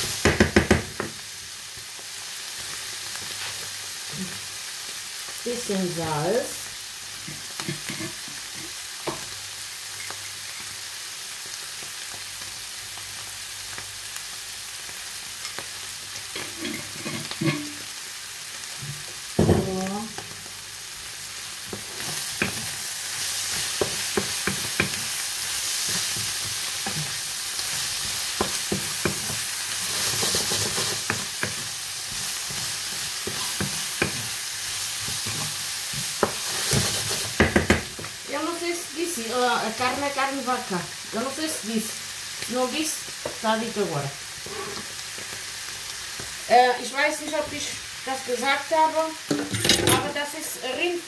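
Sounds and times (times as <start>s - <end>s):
meat sizzling in a pan: 0.0s - 51.0s
utensil scraping a pan: 16.3s - 17.8s, 25.8s - 34.3s, 35.0s - 37.4s, 44.4s - 44.9s.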